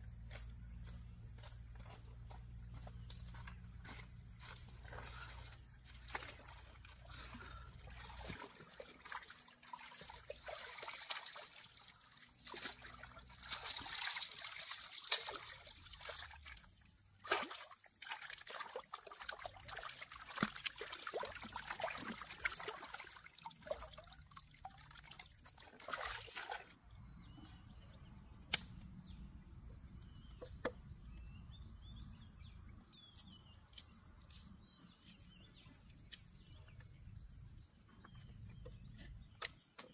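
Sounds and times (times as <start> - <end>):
stream water sloshing and trickling: 0.2 - 27.9, 29.8 - 39.9
water splashes: 4.9 - 26.8.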